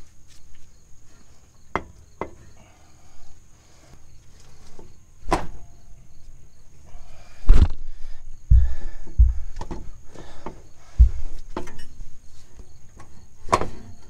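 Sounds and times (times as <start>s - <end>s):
metal clunk: 4.7s - 5.8s, 8.5s - 12.0s, 13.0s - 14.0s
metal knocks: 8.5s - 12.0s.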